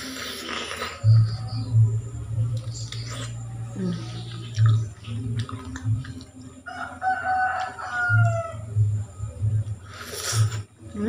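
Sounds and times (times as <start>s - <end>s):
rooster crowing: 6.6s - 8.6s.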